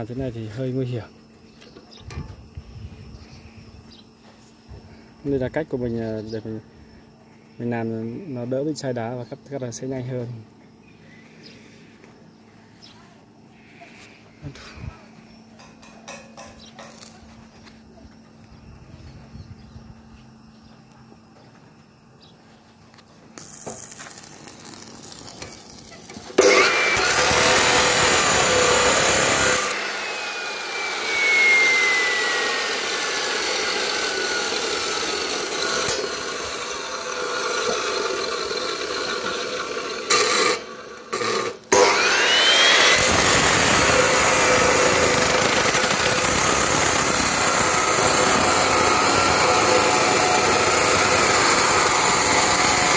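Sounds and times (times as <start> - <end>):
cut-off saw grinding steel: 23.4 - 52.9.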